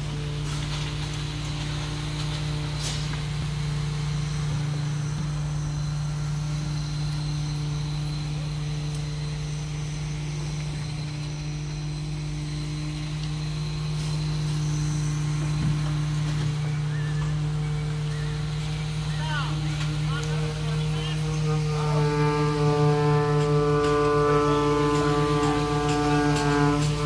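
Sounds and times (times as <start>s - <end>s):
heavy diesel engine droning: 0.0s - 27.0s.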